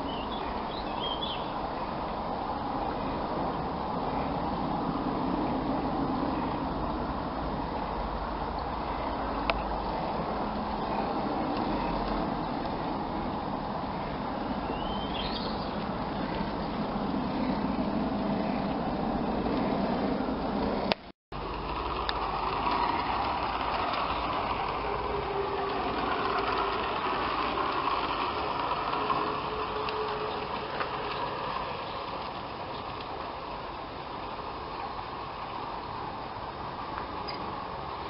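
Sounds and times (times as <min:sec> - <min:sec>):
model train electric motor hum: 0:21.4 - 0:38.0.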